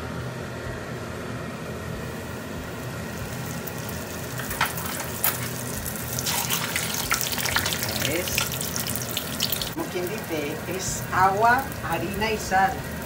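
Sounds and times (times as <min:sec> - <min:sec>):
steady hum: 0:00.0 - 0:13.0
oil sizzling in a frying pan: 0:02.0 - 0:13.0.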